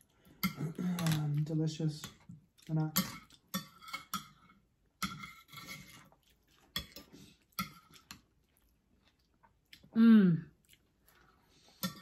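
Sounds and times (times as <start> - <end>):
spoons clinking on porcelain bowls: 2.8 - 5.9.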